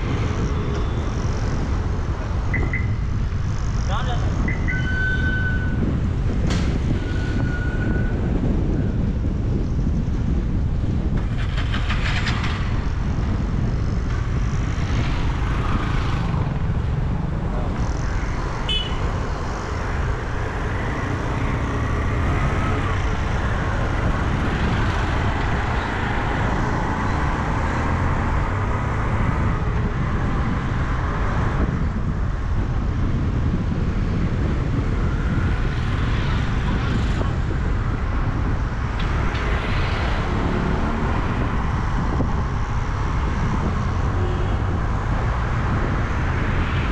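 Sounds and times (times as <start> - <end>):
road traffic rumble: 0.0 - 46.9
car horn toots: 18.7 - 19.0.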